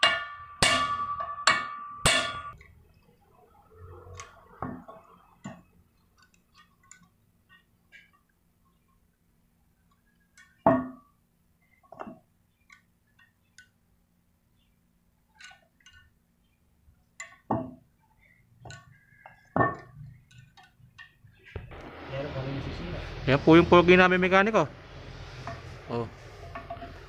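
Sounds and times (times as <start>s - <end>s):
metal tool clinking on metal: 0.0s - 2.7s.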